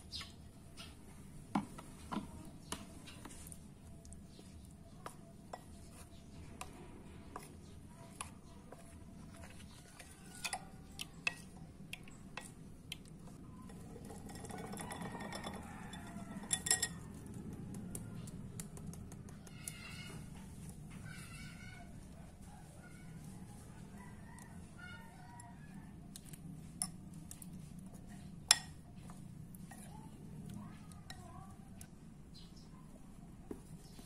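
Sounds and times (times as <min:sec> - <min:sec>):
metal spoon clinking in glass bowl: 0:13.7 - 0:17.1.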